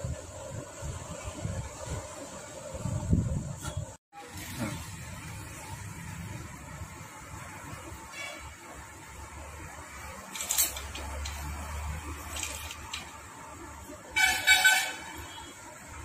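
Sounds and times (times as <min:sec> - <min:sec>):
vehicle horn honk: 0:14.2 - 0:15.6.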